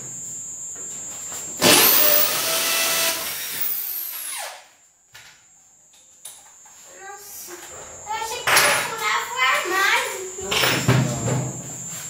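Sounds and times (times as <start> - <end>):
electric drill running: 1.6 - 4.7.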